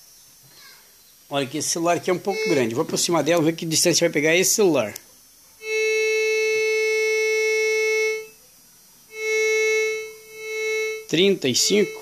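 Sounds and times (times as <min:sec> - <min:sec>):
metal detector buzzy tone: 0:01.8 - 0:03.8, 0:05.6 - 0:08.4, 0:09.1 - 0:12.0.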